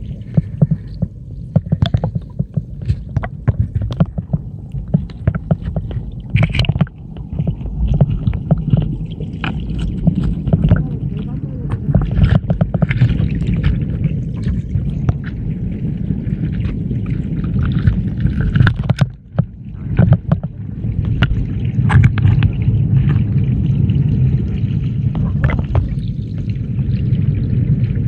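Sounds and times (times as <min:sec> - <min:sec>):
underwater stream rush: 0:00.0 - 0:28.0
sharp clicks and knocks: 0:00.3 - 0:10.9, 0:11.8 - 0:13.8, 0:18.4 - 0:22.5.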